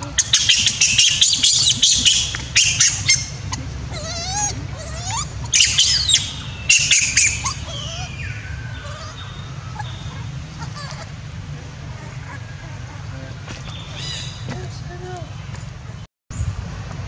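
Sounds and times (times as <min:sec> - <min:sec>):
monkey squealing softly: 0:00.0 - 0:11.1
young monkey screaming: 0:00.0 - 0:11.2, 0:11.8 - 0:14.5.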